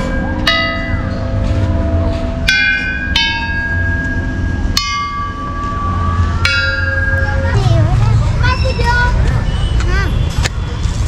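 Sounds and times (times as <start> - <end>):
metal tube chimes ringing: 0.0 - 7.7.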